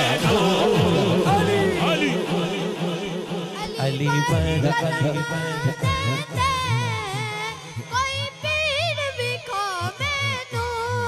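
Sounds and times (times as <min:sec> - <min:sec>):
rhythmic musical backing: 0:00.0 - 0:10.9
boy singing into microphone: 0:03.5 - 0:11.0.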